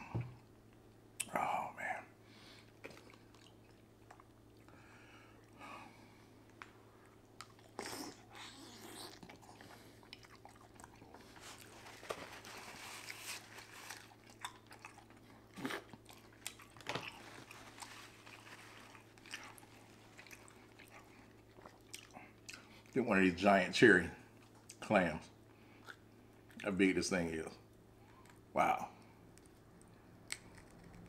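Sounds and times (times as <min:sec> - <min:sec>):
person chewing food: 0:02.6 - 0:05.6, 0:06.4 - 0:23.0
crackles of food: 0:06.4 - 0:23.0, 0:29.4 - 0:31.0.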